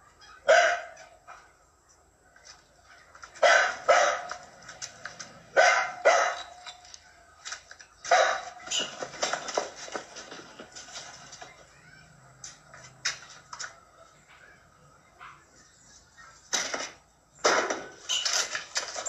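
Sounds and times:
small dog barking: 0:00.2 - 0:01.1, 0:03.4 - 0:04.4, 0:05.5 - 0:06.6, 0:08.1 - 0:08.6
knocks and scuffles: 0:06.5 - 0:11.7.

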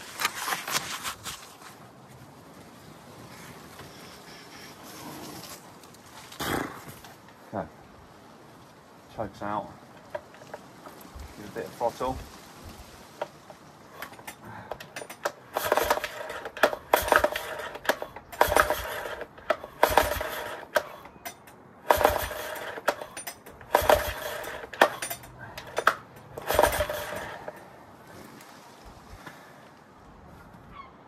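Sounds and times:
outboard engine pull-start whir: 0:13.9 - 0:27.6.

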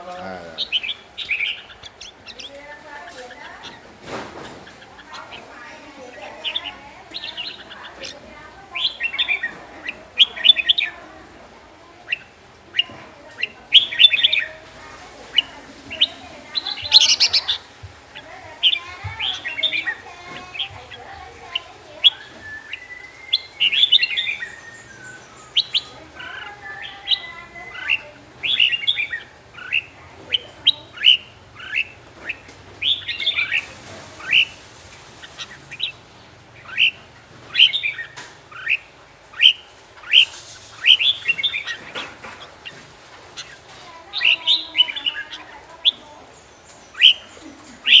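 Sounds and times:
bird singing whistled phrases: 0:22.0 - 0:29.9, 0:46.9 - 0:48.0.

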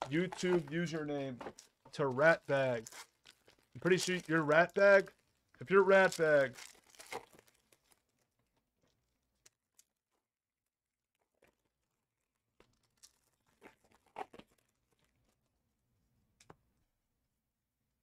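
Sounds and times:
foil packs crinkling: 0:00.0 - 0:08.5, 0:11.5 - 0:15.4.

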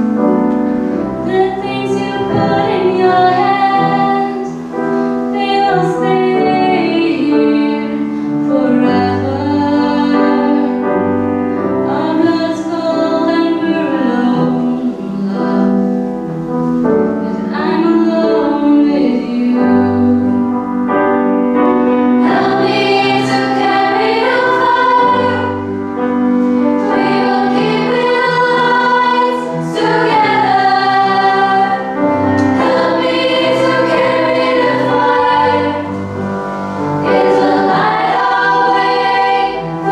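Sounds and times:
grand piano: 0:00.0 - 0:39.9
female choir singing: 0:01.2 - 0:04.6, 0:22.2 - 0:39.9.

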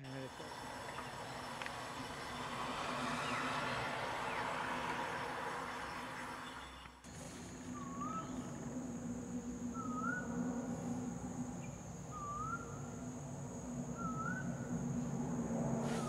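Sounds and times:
high insect trill: 0:00.0 - 0:16.0
bird whistling: 0:07.7 - 0:08.6, 0:09.7 - 0:10.5, 0:11.6 - 0:13.2, 0:13.9 - 0:14.8.

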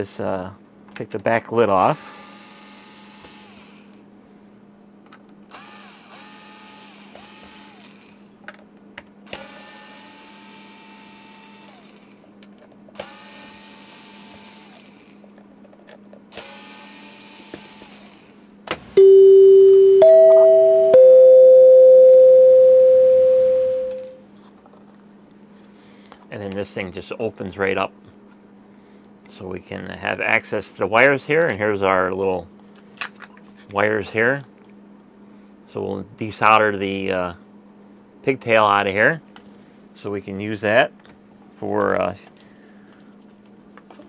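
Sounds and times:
loud electronic tones: 0:19.0 - 0:24.2
steady low hum: 0:19.0 - 0:24.2.

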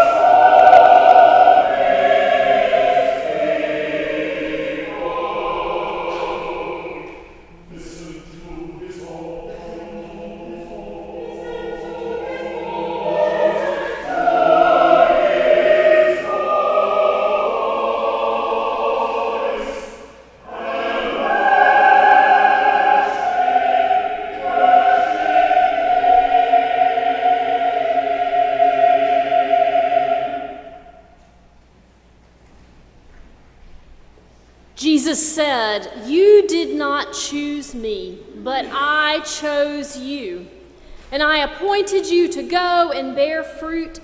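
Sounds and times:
mixed choir singing: 0:00.0 - 0:31.2.

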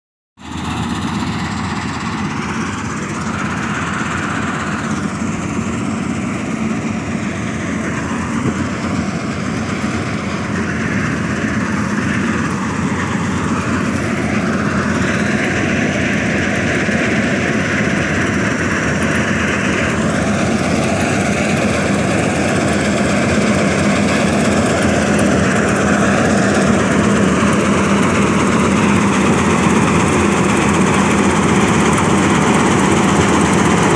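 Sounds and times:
combine harvester running: 0:00.4 - 0:33.9.

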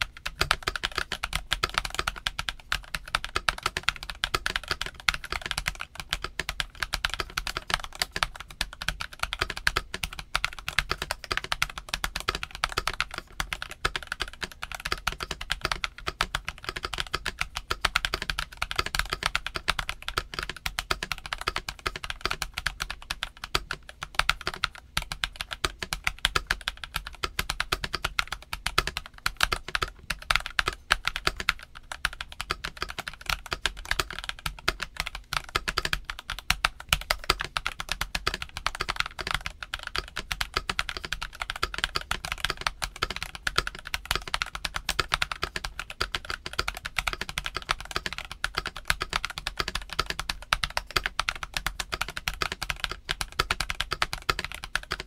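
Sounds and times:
fast mechanical keyboard typing: 0:00.0 - 0:55.0.

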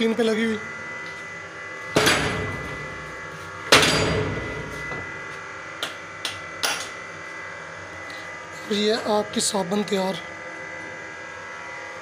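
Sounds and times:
press die striking heavily: 0:03.7 - 0:04.7.

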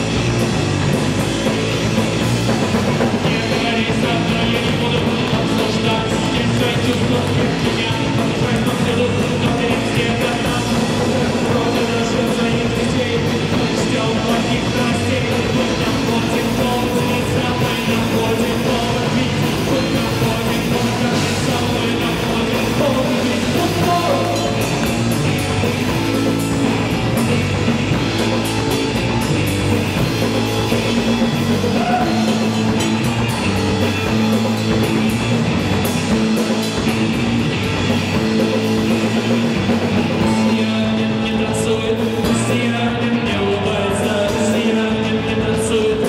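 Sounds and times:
bass guitar: 0:00.0 - 0:46.0
drum kit: 0:00.0 - 0:46.0
electric guitar: 0:00.0 - 0:46.0.

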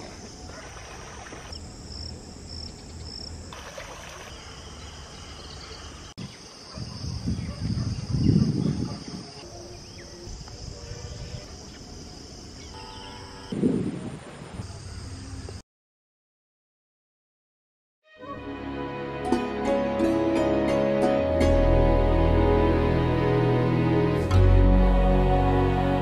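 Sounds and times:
insects chirring: 0:00.0 - 0:13.7.

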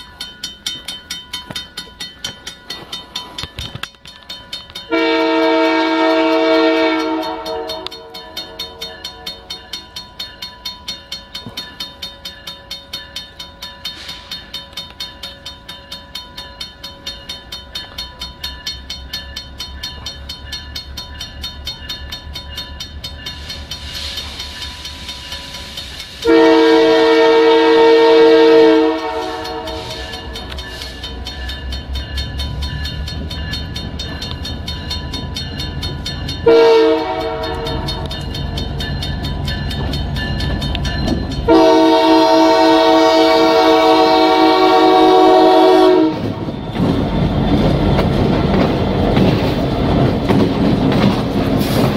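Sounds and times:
crossing bell ringing: 0:00.0 - 0:51.9
diesel locomotive engine rumble: 0:00.0 - 0:51.9
locomotive air horn: 0:04.9 - 0:08.1, 0:26.2 - 0:30.4, 0:36.4 - 0:38.1, 0:41.5 - 0:46.4.

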